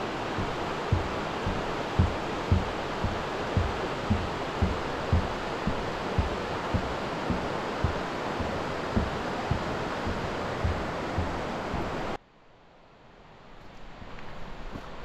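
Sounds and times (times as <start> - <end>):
footsteps on trail: 0.0 - 11.9
fast-flowing river rushing: 0.0 - 12.2.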